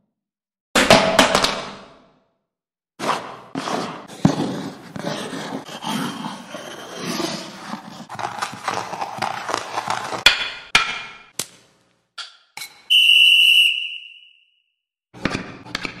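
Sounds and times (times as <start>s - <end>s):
rough scraping noise: 3.0s - 10.3s
high whistle blast: 12.9s - 14.7s.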